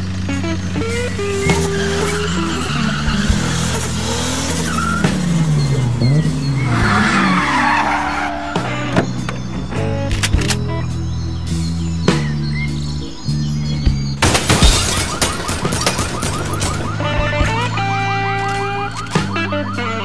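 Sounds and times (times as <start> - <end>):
car engines revving: 0.0 - 20.0
music track: 0.0 - 20.0
tyres squealing: 0.1 - 12.7.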